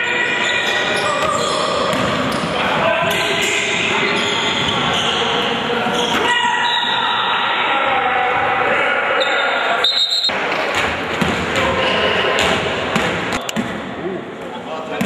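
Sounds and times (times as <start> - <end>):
voices in a hall: 0.0 - 15.0
basketball bouncing on wooden court: 1.2 - 2.4.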